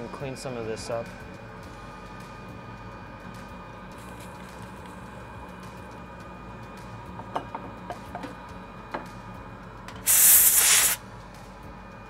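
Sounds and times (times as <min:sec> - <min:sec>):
aerosol can spraying: 0:10.0 - 0:11.0.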